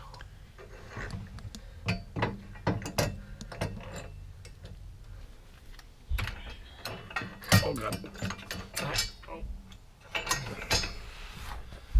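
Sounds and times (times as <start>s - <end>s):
hand tools clicking and knocking: 0.6s - 4.8s, 6.2s - 11.0s.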